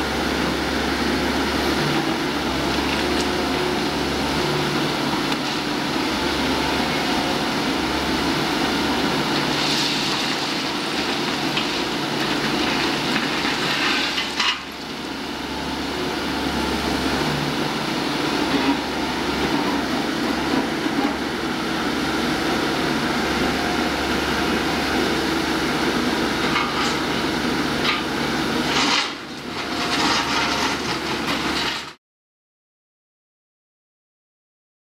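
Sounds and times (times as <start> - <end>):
excavator diesel engine running: 0.0 - 32.0
ballast stones scraping and clattering: 29.7 - 31.9.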